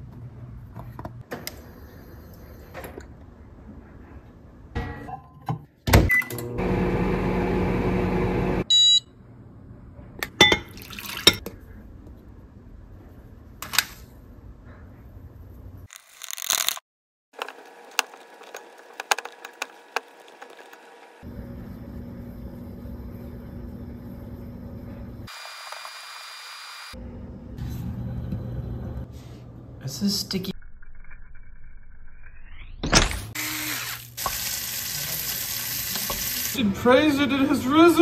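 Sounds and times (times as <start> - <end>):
microwave beeping: 5.1 - 9.2
microwave oven humming: 6.0 - 9.6, 20.8 - 25.6, 26.2 - 29.8.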